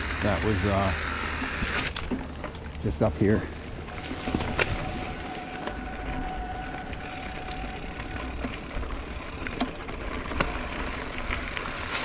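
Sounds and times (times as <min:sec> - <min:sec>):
bike clicks: 0:00.0 - 0:03.2, 0:06.7 - 0:12.0
bike tyre rumble on dirt: 0:00.0 - 0:12.0.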